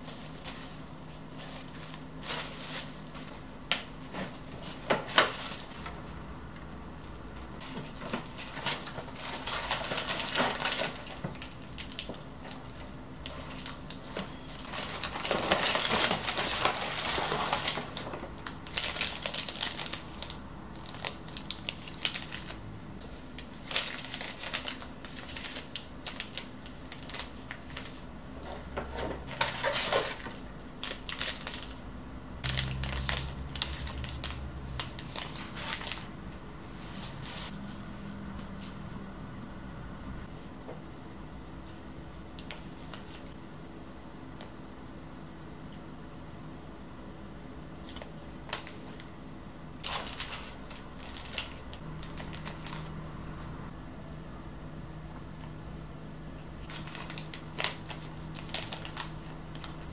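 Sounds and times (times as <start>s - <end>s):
paper and foil crinkling: 0.0s - 6.2s, 6.9s - 31.8s, 32.4s - 37.8s, 42.3s - 43.4s, 49.8s - 53.1s, 56.6s - 59.9s.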